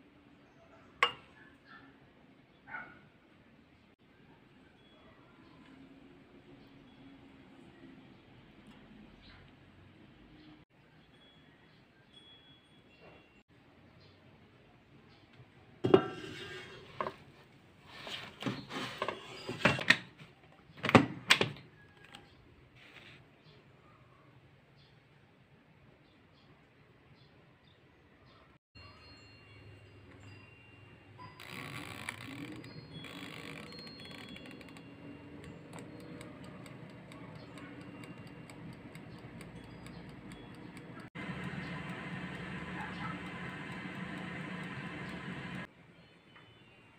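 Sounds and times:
timer dial ticking: 32.2 - 45.7.

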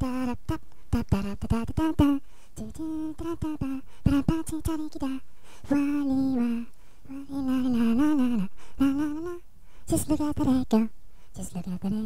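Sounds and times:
person singing a cappella: 0.0 - 12.0.

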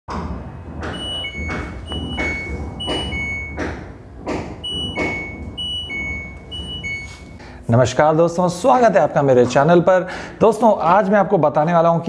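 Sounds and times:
two-tone alarm beep: 0.8 - 3.7, 4.6 - 7.4.

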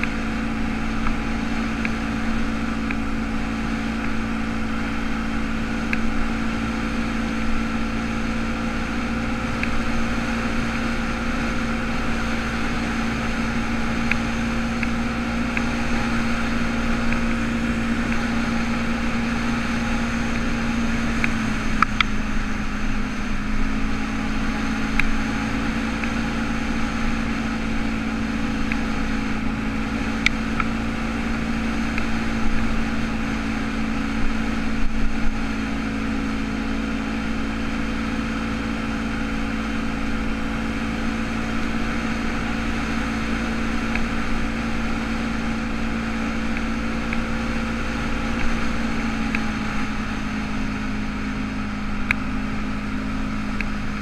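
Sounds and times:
atv engine running on gravel: 0.0 - 54.0.

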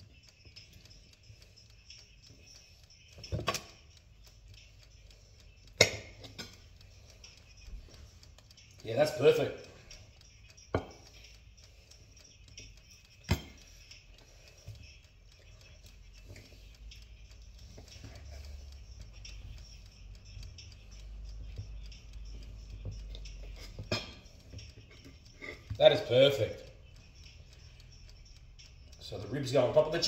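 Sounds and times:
sharp clicks: 0.0 - 30.0.

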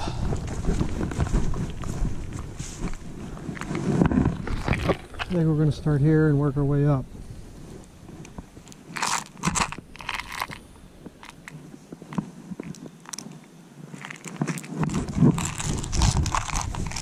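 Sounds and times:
dry leaves crunching and rustling: 13.9 - 17.0.

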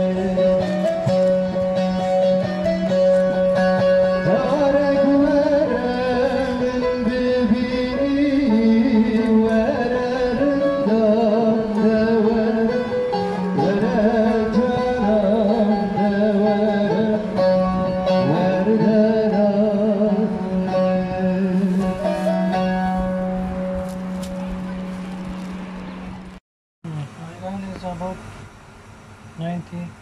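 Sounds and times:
man singing into microphone: 0.0 - 1.4, 3.9 - 22.8
long-necked lute through amplifier: 0.0 - 26.4.

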